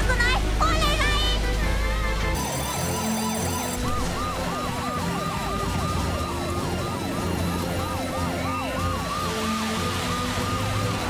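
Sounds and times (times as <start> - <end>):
cartoon sirens wailing: 2.4 - 11.0.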